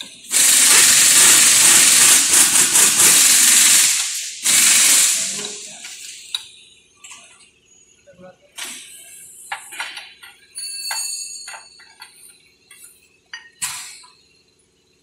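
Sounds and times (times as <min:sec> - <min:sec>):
air hissing from press: 0:00.0 - 0:06.5, 0:08.6 - 0:10.4, 0:11.5 - 0:14.2.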